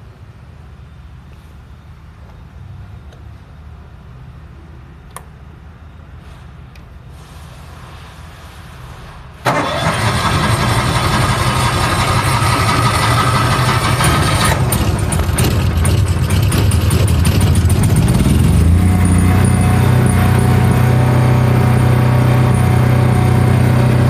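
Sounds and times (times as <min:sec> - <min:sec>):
welder engine starting and running: 0:07.2 - 0:24.0.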